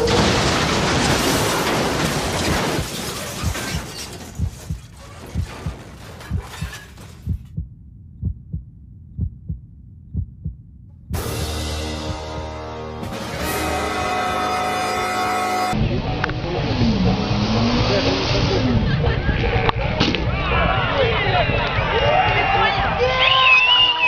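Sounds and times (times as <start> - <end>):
car crashing and scraping: 0.0 - 7.3
low heartbeat thumps: 4.4 - 6.7, 7.3 - 12.6
music: 11.2 - 16.3.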